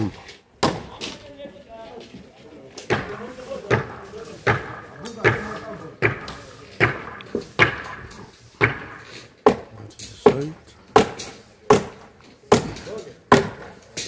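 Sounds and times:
hammer blows ringing: 2.9s - 13.7s.

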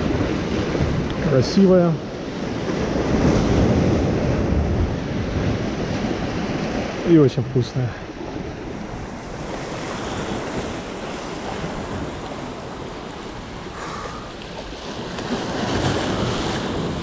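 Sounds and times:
sea waves surging: 0.0s - 17.0s
wind buffeting microphone: 0.0s - 17.0s.

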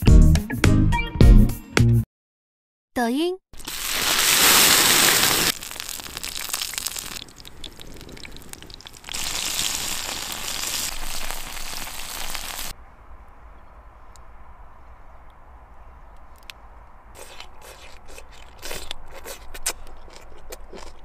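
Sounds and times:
vegetables sizzling in oil: 3.6s - 12.7s.

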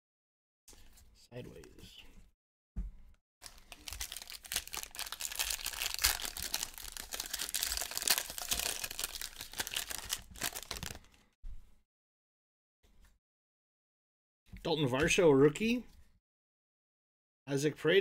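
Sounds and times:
foil wrapper tearing and crinkling: 3.4s - 11.2s.

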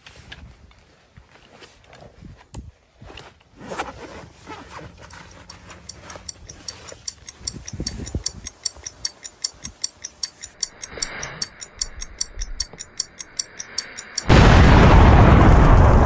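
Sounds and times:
clock-like ticking: 5.0s - 14.6s
deep boom with rushing noise: 14.3s - 16.0s.

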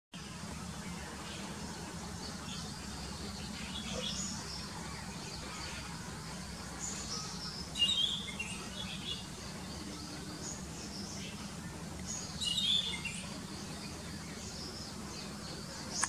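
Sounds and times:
steady low hum: 0.2s - 16.0s.

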